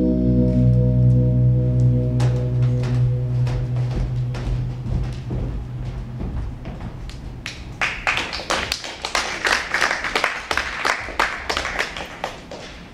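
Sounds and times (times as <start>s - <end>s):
low music note: 0.0s - 6.1s
audience applause: 7.4s - 12.9s.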